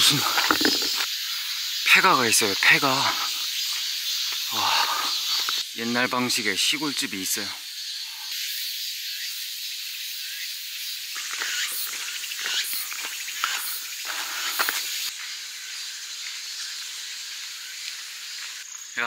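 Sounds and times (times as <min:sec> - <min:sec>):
footsteps on gravel: 0:00.0 - 0:01.1, 0:11.2 - 0:15.1
insect chorus hiss: 0:00.0 - 0:19.0.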